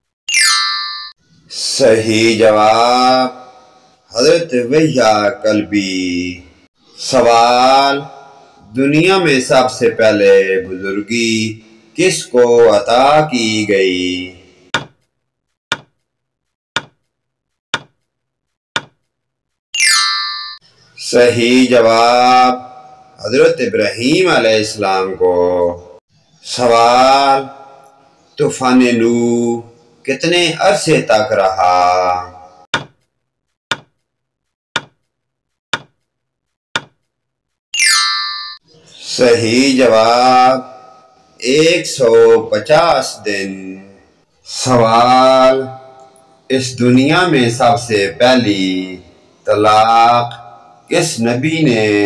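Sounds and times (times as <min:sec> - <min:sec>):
bright chime: 0:00.3 - 0:01.2, 0:19.8 - 0:20.7, 0:37.8 - 0:38.6
ringing ding: 0:00.3 - 0:01.2, 0:19.8 - 0:20.7, 0:37.8 - 0:38.6
timer ticks: 0:34.8 - 0:35.2.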